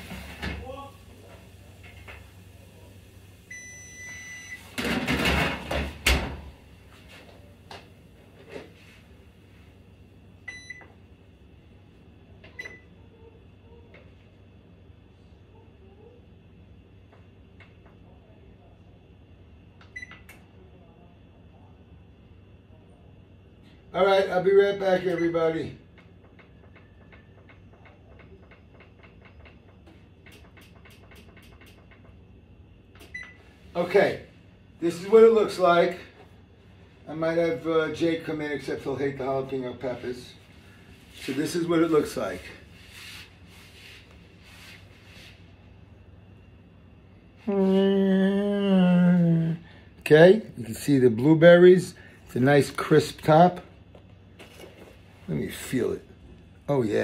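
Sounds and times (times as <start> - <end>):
oven door banging shut: 4.8 - 6.5.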